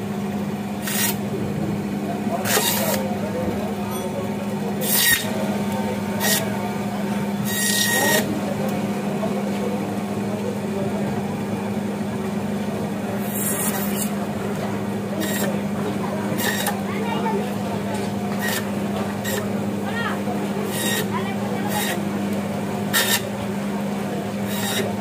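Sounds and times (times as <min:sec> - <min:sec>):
band saw humming: 0:00.0 - 0:09.4, 0:11.6 - 0:25.0
saw blade rasping through fish: 0:00.8 - 0:01.2, 0:02.4 - 0:03.0, 0:04.8 - 0:05.4, 0:06.2 - 0:06.5, 0:07.4 - 0:08.3, 0:13.2 - 0:14.2, 0:15.2 - 0:15.6, 0:16.3 - 0:16.8, 0:18.3 - 0:19.5, 0:20.6 - 0:22.0, 0:22.9 - 0:23.3, 0:24.4 - 0:25.0.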